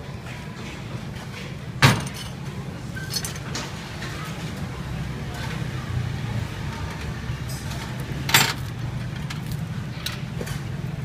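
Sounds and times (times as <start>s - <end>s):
utensils clinking on steel counter: 1.2s - 4.7s, 6.6s - 11.0s.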